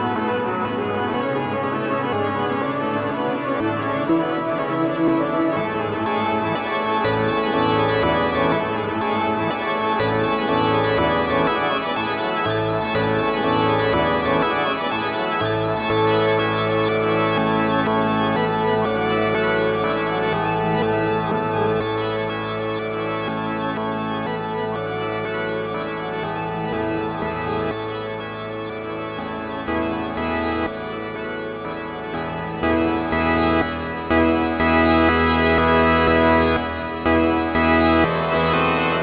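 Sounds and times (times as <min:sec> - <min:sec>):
electronic organ-like chords: 0:00.0 - 0:39.0.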